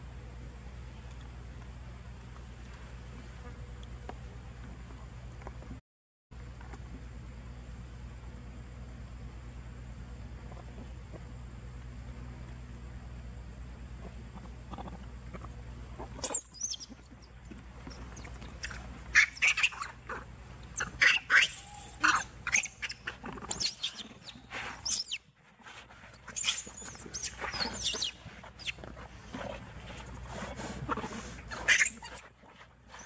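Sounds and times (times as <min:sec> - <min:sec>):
monkeys screaming: 0:20.8 - 0:24.1.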